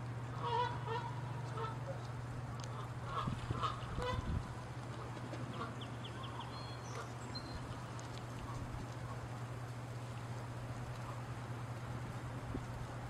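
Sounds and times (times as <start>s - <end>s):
geese honking: 0.3s - 2.0s, 2.6s - 9.2s.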